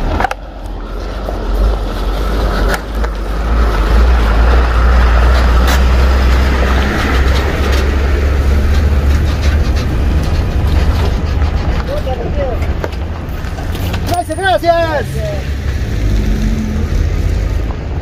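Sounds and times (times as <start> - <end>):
diesel truck engine rumble: 0.0 - 18.0
tyre noise on dirt road: 0.0 - 18.0.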